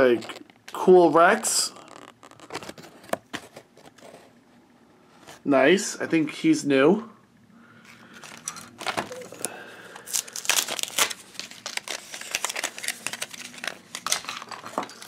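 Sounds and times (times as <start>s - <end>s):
plastic packaging crinkling: 0.0s - 4.2s, 8.1s - 15.0s.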